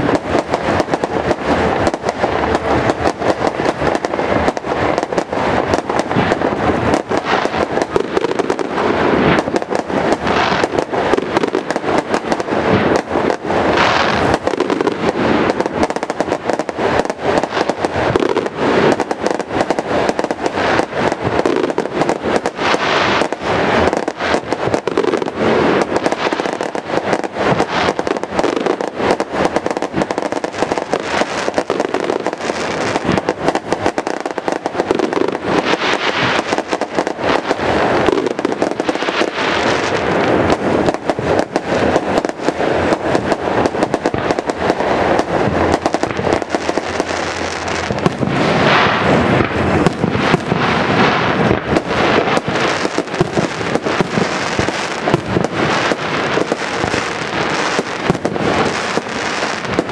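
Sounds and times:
fireworks bursting: 0.0 - 59.9.

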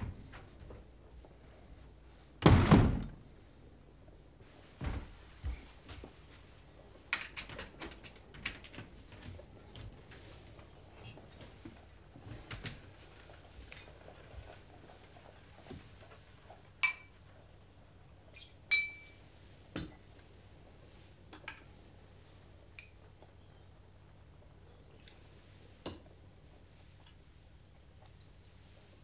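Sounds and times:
glassware clinking: 16.8 - 17.2, 18.7 - 19.2.

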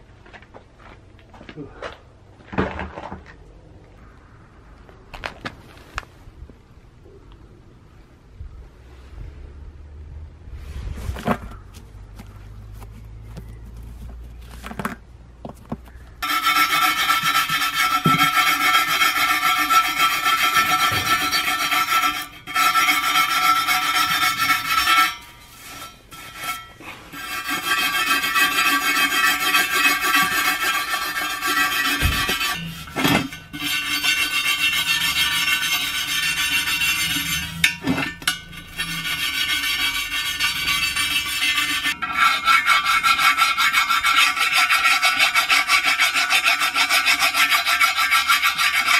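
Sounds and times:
rust scraping off steel wheel: 10.7 - 48.9.

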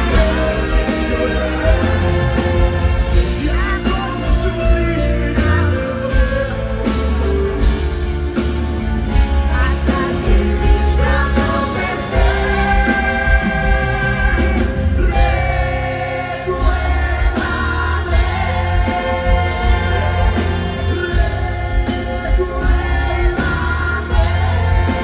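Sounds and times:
man singing a ballad: 0.0 - 7.6, 9.2 - 25.0
live band playing: 0.0 - 25.0.

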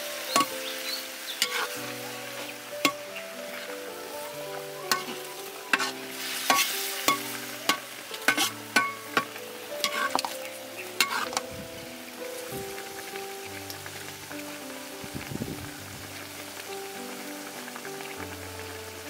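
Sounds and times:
meat sizzling in a pan: 0.0 - 19.0
soft background music: 0.0 - 19.0
utensil scraping a pan: 1.4 - 1.8, 4.9 - 10.4, 11.0 - 11.4.

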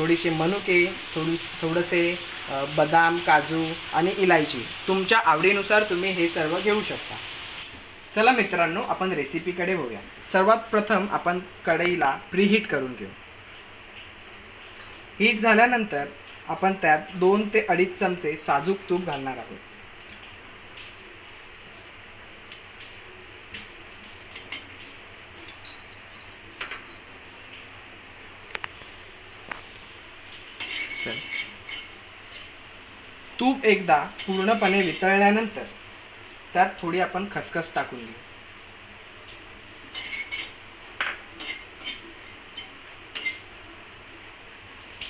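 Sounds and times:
low hiss: 0.0 - 25.8
spoon clinking and scraping on pan: 30.6 - 32.5, 34.2 - 35.2, 39.8 - 43.5.

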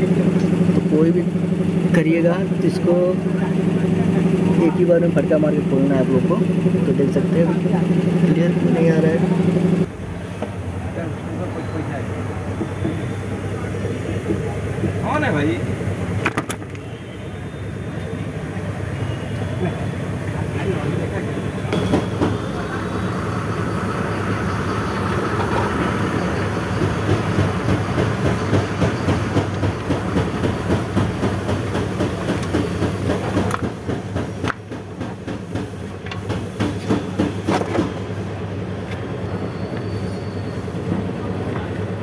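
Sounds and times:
machine humming: 0.0 - 10.2.

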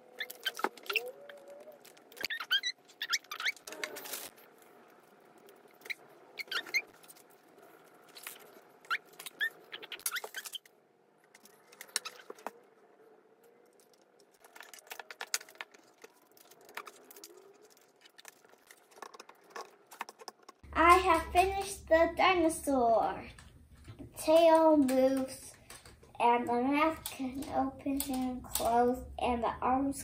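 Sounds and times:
plastic parts clicking and rattling: 0.0 - 12.8, 13.4 - 21.2, 23.3 - 26.1.

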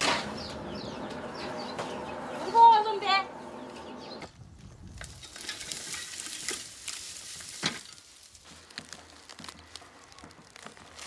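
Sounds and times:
dry grass rustling and crackling: 4.4 - 11.0.

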